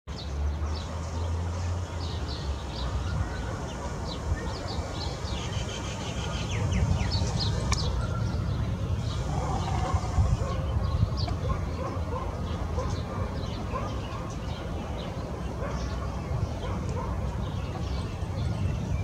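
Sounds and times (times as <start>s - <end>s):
small birds chirping: 0.1s - 19.0s
steady low rumble: 6.6s - 11.4s.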